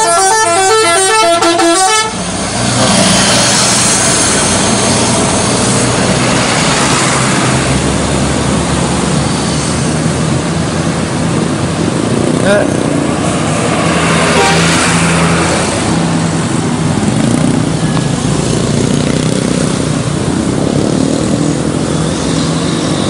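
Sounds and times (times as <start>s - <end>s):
multi-tone musical bus horn: 0.0s - 2.4s, 14.3s - 14.9s.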